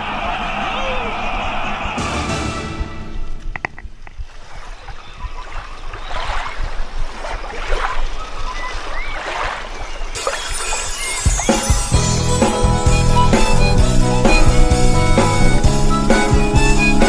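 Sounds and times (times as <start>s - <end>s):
music: 1.8s - 3.6s, 10.2s - 17.0s.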